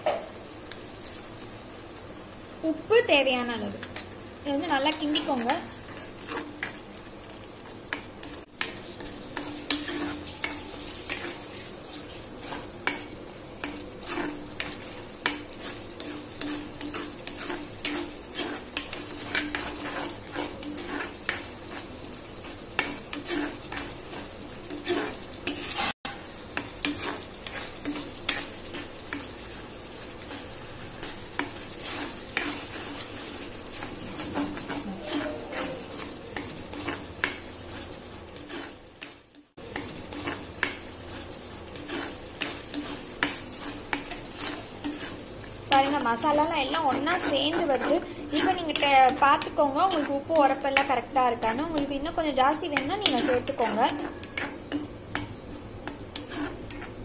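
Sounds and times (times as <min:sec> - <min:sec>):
paste sizzling in oil: 0:00.0 - 0:57.0
spoon scraping and clinking pan: 0:12.4 - 0:21.9, 0:22.8 - 0:29.3, 0:31.0 - 0:39.2, 0:41.8 - 0:57.0.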